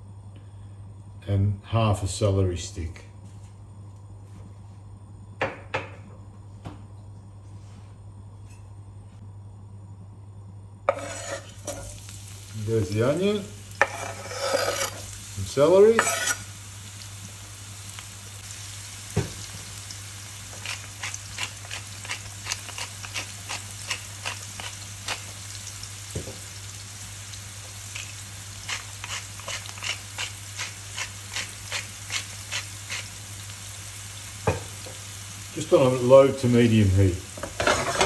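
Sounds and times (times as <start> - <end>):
low steady hum: 0.0 - 37.4
vegetables sizzling in a frying pan: 10.9 - 38.0.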